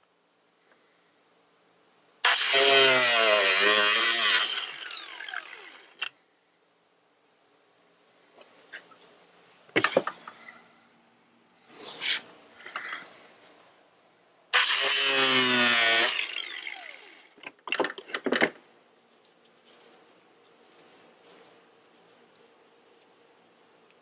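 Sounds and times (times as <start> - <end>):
tool cutting plastic bumper: 2.2 - 6.1, 14.6 - 16.9.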